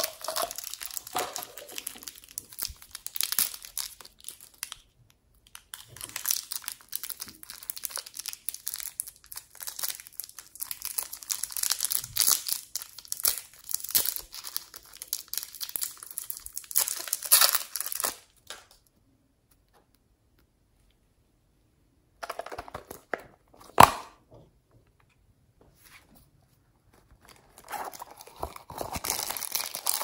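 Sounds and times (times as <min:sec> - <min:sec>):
plastic packaging crinkling and tearing: 0:00.0 - 0:18.8, 0:27.1 - 0:30.0.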